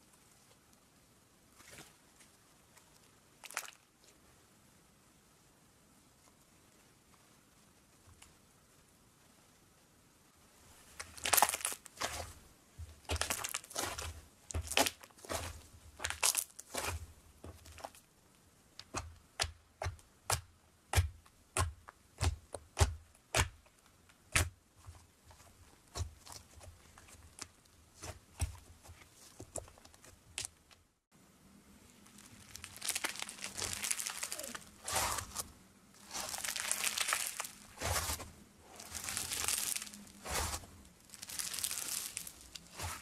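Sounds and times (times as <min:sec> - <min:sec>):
slime crackling and tearing: 0:03.4 - 0:03.8, 0:11.0 - 0:12.3, 0:13.0 - 0:18.0, 0:32.0 - 0:43.0
slime popping: 0:13.0 - 0:16.9, 0:32.2 - 0:35.4, 0:36.0 - 0:43.0.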